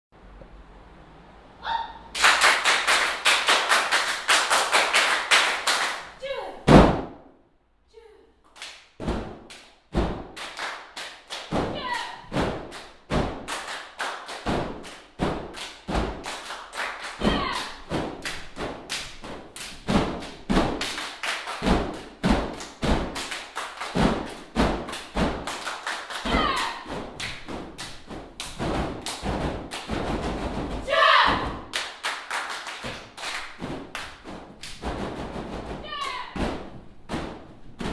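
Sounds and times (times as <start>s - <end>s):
body percussion clapping and slapping: 2.2s - 7.2s, 8.5s - 37.9s
short shouted calls: 17.2s - 17.8s, 26.2s - 26.9s, 30.8s - 31.6s.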